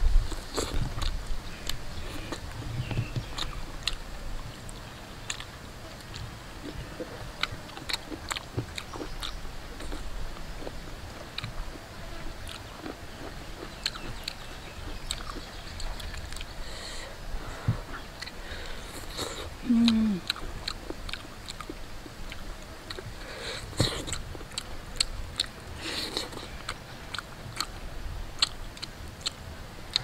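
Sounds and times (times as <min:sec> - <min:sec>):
person chewing chicken off bone: 0:00.3 - 0:17.0, 0:17.8 - 0:27.8, 0:28.4 - 0:30.0
sharp mouth clicks and smacks: 0:13.6 - 0:16.5, 0:19.0 - 0:23.1, 0:28.4 - 0:30.0.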